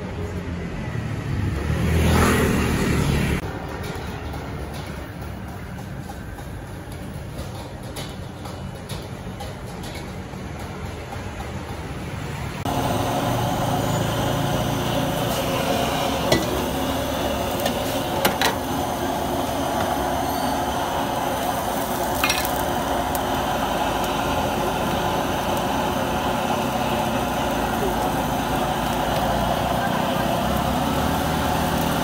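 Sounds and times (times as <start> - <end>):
street background: 0.0 - 32.0
gas burner rushing: 1.3 - 32.0
oil sizzling in a wok: 12.7 - 32.0.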